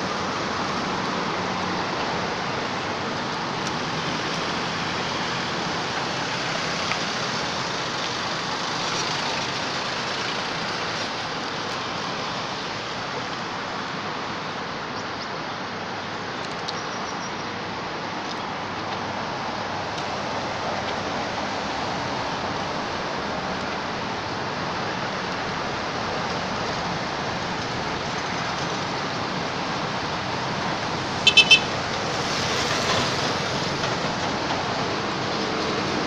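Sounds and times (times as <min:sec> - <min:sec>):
road traffic passing: 0:00.0 - 0:36.0
vehicle passing close: 0:28.6 - 0:36.0.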